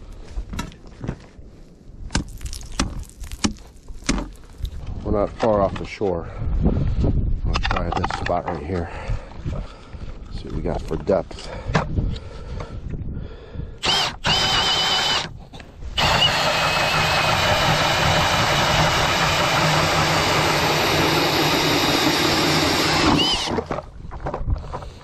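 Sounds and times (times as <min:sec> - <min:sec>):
ice auger grinding through ice: 0:13.8 - 0:15.3, 0:16.0 - 0:23.7
cordless drill spin-up whine: 0:13.8 - 0:23.7.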